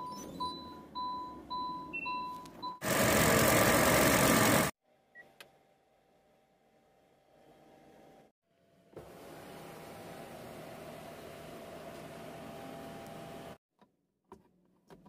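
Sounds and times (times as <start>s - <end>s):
car warning chime beeping: 0.0s - 2.8s.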